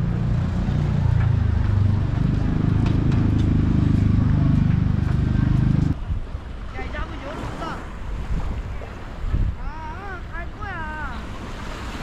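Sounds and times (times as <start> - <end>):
loud low street rumble: 0.0 - 6.7.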